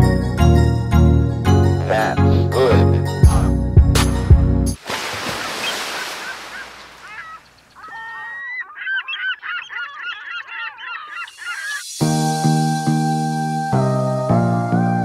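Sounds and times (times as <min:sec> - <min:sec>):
flock of birds honking: 0:05.6 - 0:11.8.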